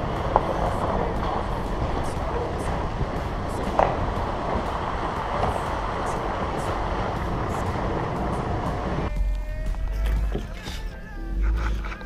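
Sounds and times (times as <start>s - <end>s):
vehicle rumble on muddy trail: 0.0s - 9.1s.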